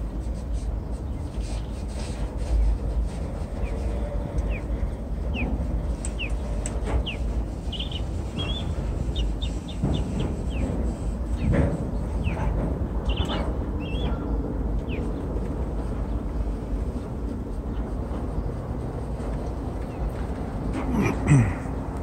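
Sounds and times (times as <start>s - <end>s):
freight train rumbling over bridge: 1.9s - 22.0s
small birds chirping: 3.5s - 20.2s.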